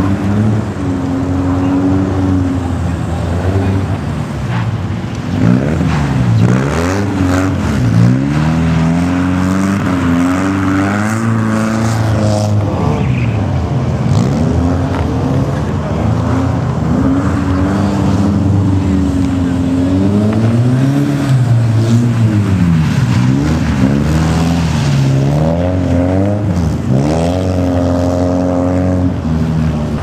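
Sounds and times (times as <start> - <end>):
car engine revving hard: 5.2 - 13.1, 13.9 - 30.0.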